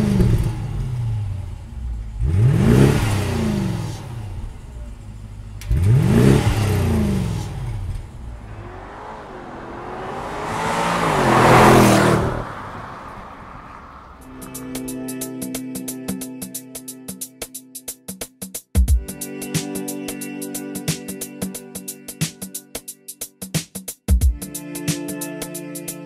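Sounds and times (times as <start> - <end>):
car engine revving: 0.0 - 14.9
car passing under acceleration: 0.0 - 14.9.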